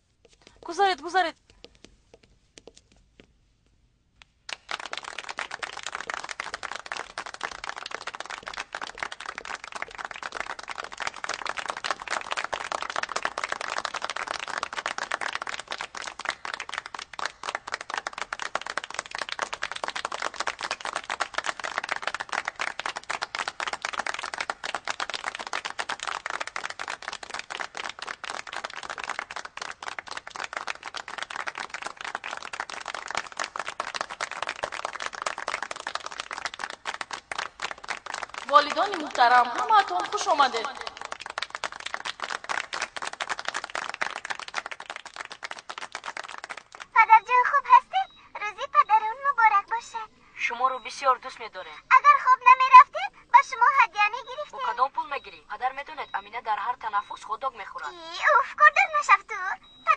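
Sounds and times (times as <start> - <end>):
audience applauding: 4.5 - 46.9.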